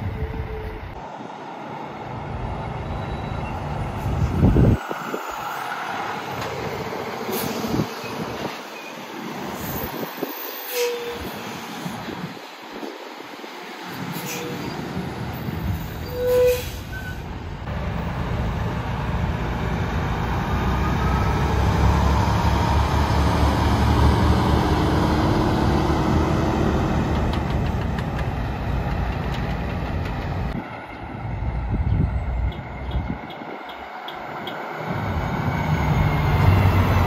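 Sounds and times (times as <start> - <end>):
brief squeal: 2.8 - 4.4, 9.6 - 11.3, 14.2 - 14.8, 15.8 - 17.3
truck engine rumbling: 16.6 - 37.0.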